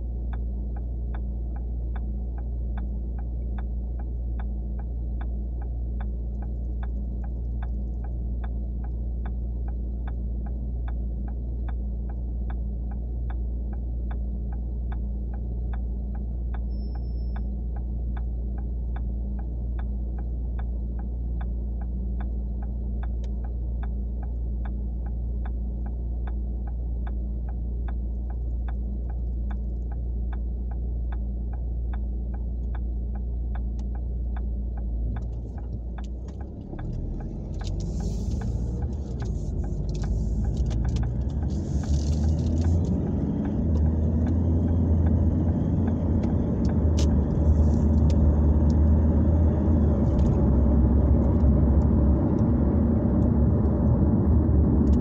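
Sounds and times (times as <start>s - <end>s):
turn signal clicking: 0.0s - 55.0s
car engine idling: 18.3s - 55.0s
road noise: 34.8s - 55.0s.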